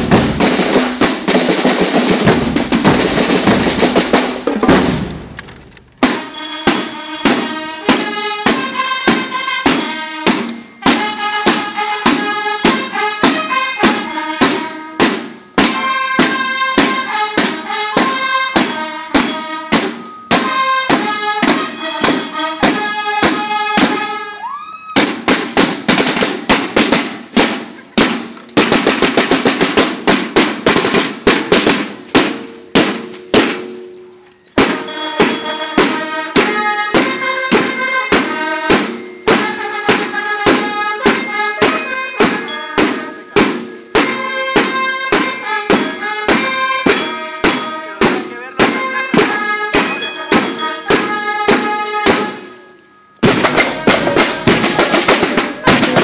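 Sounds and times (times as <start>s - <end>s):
pitched ringing notes: 6.1s - 24.2s, 33.7s - 55.7s
snare drum cadence: 53.2s - 56.0s.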